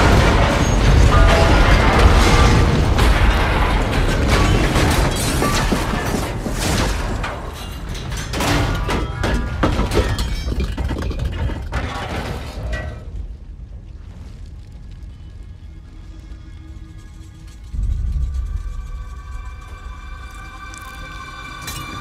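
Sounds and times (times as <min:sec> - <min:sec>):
metal debris crashing: 0:00.0 - 0:13.7
background music: 0:15.9 - 0:22.0
heavy low booms: 0:17.4 - 0:22.0.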